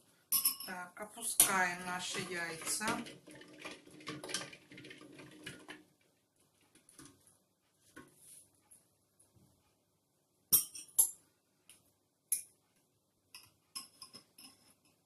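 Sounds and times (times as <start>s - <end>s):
metal spoon clinking ceramic bowl: 0.3s - 0.7s, 10.5s - 11.2s, 13.4s - 14.6s.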